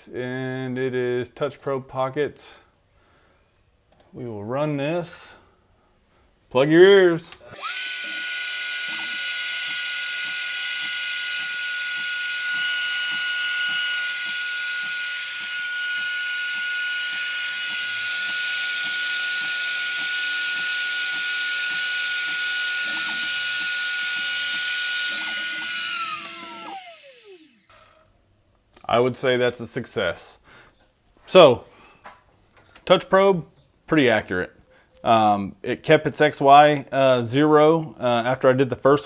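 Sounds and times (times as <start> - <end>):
wood cutting rumble: 7.6 - 28.0
router spindle high whine: 7.6 - 28.1.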